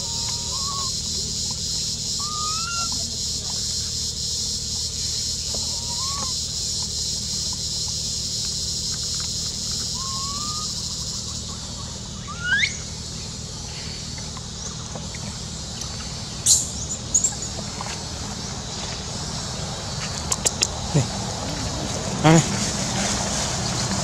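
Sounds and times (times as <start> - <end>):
rising animal chirps: 0.0 - 1.1, 2.1 - 3.0, 5.6 - 6.5, 9.8 - 13.0.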